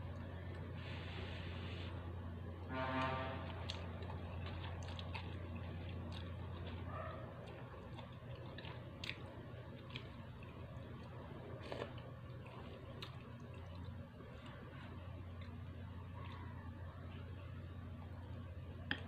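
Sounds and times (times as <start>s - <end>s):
slurping and chewing noodles: 3.0s - 16.6s.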